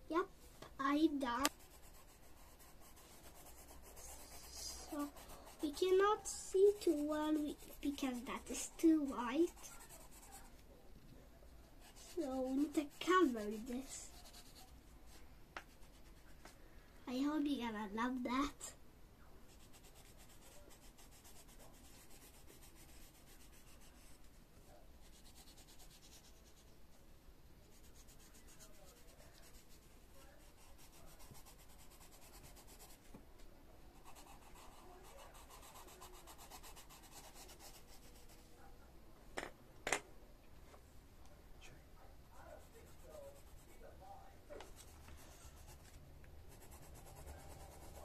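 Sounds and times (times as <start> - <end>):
coloured pencil scratching on paper: 1.1 - 10.6, 11.8 - 16.4, 19.5 - 24.4, 25.0 - 26.7, 27.7 - 33.0, 34.0 - 38.5, 42.3 - 43.8, 44.6 - 48.0.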